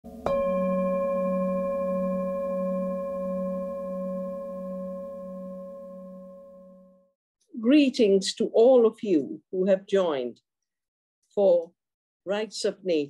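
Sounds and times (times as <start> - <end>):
metal bell ringing: 0.2 - 6.8.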